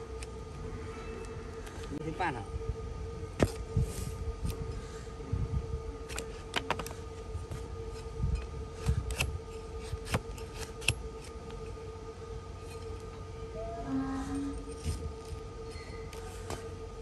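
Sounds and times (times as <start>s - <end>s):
faint steady hum: 0.0s - 17.0s
shovel cutting and scraping hoof: 8.8s - 11.4s.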